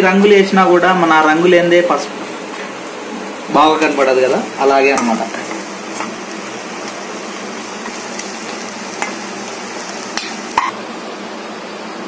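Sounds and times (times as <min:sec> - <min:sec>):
corn sizzling in a pan: 0:00.7 - 0:11.4
spatula stirring: 0:04.9 - 0:10.7.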